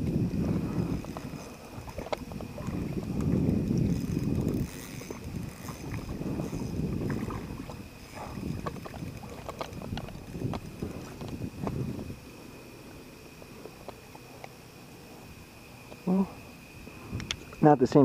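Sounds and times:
small clicks and knocks: 8.6s - 11.8s.

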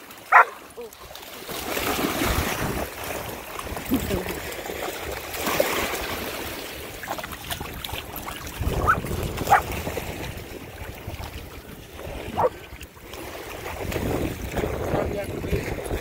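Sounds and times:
dogs splashing in water: 0.0s - 16.0s
dog yips: 8.8s - 9.6s.

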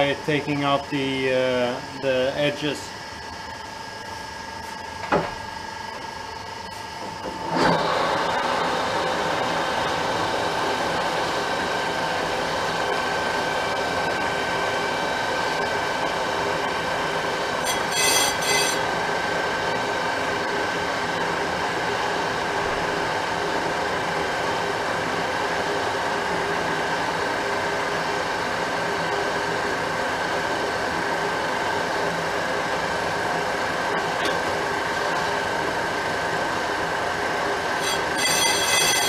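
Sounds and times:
metal lathe whining: 6.6s - 22.4s, 33.0s - 39.0s
high-pitched squeal: 17.6s - 18.9s, 37.8s - 39.0s.

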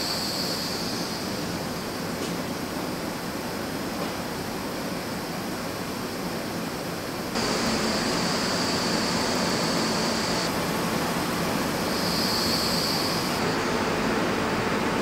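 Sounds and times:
hissing engine test stand: 0.0s - 2.4s, 7.3s - 15.0s.

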